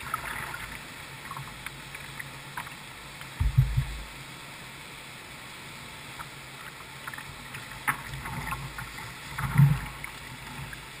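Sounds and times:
river water rushing: 0.0 - 11.0
heavy splash and thump: 3.4 - 4.1.

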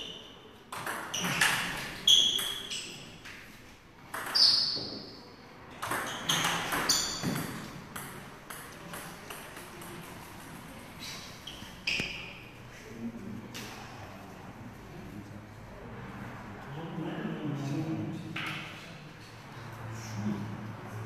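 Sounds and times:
table tennis ball hits: 0.1 - 5.1, 5.7 - 10.8.

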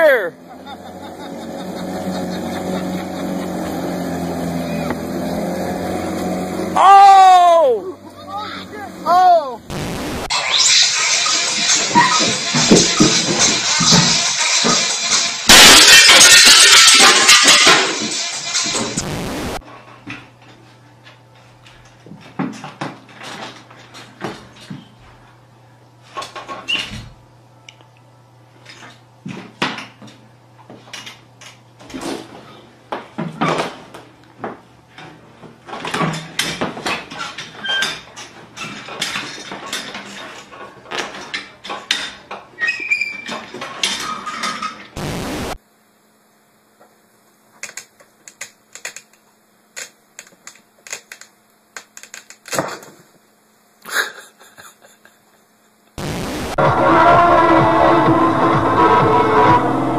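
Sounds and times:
chair clattering on hard floor: 22.0 - 24.9, 31.8 - 42.4.

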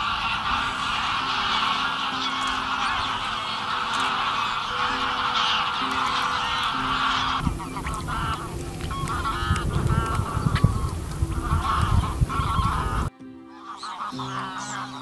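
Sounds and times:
geese honking in flight: 0.0 - 15.0.

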